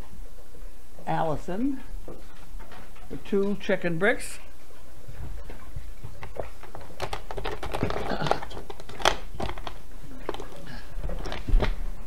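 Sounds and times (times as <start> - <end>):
steady low hum: 0.0 - 12.0
paper rustling and crinkling: 5.2 - 11.9.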